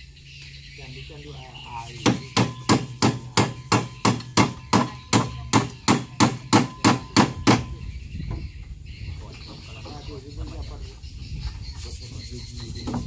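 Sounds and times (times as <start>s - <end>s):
hammer blows: 2.0s - 7.8s.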